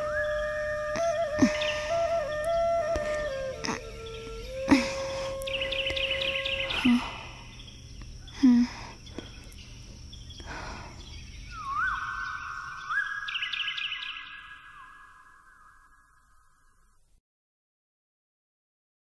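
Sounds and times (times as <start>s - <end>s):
held whistle-like tone: 0.0s - 7.2s, 11.5s - 16.2s
birds chirping trills: 0.0s - 17.0s.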